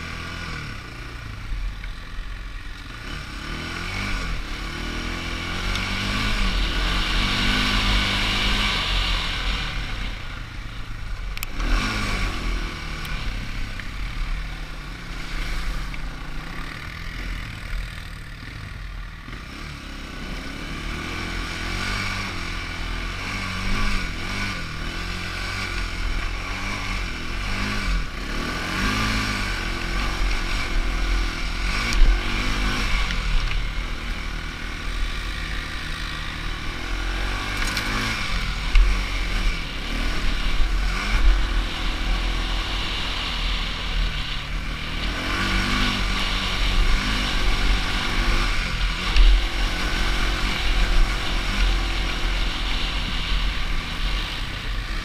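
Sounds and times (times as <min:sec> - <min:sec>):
atv engine revving: 0:00.0 - 0:55.0.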